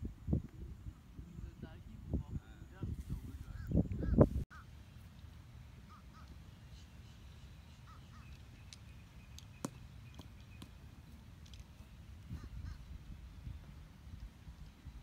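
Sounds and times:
faint bird calls: 0:03.4 - 0:04.8, 0:05.8 - 0:11.0, 0:11.8 - 0:13.0
golf club striking ball: 0:09.4 - 0:10.7.

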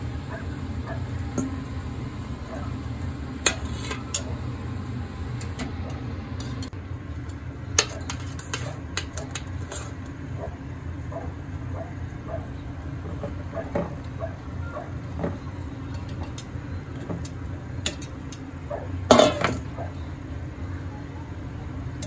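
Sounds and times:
metal tongs clinking against pot: 0:03.4 - 0:04.4, 0:05.4 - 0:10.0, 0:15.5 - 0:19.8.

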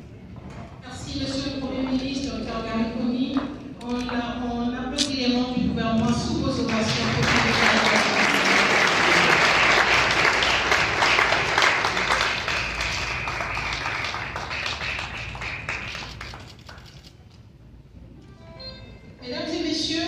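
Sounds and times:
audience applauding: 0:06.9 - 0:17.0.

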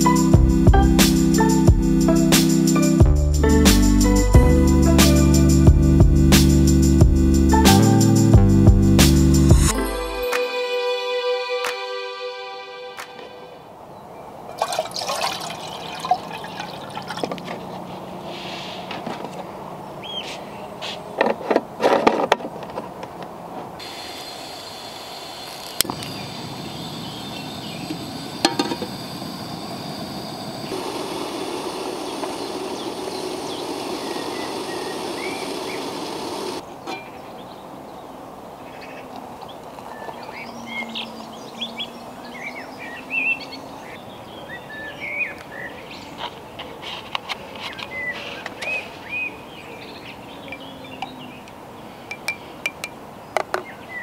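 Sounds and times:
birds chirping: 0:00.0 - 0:08.3, 0:13.3 - 0:21.6, 0:23.0 - 0:54.0
gas stove hissing: 0:23.8 - 0:36.6.

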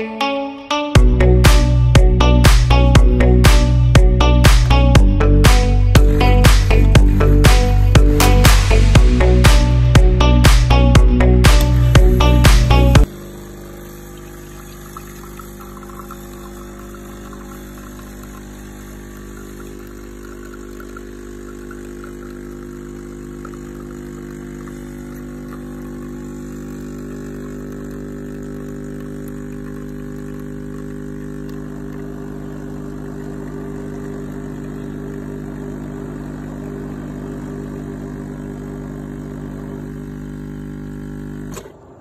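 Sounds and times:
espresso machine pump humming: 0:05.9 - 0:42.0.

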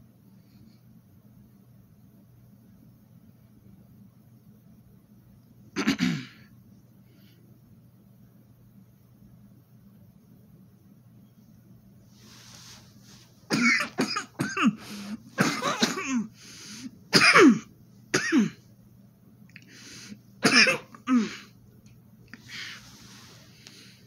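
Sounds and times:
woman coughing: 0:05.8 - 0:06.4, 0:13.5 - 0:14.8, 0:15.4 - 0:16.3, 0:17.1 - 0:18.6, 0:20.4 - 0:21.5.

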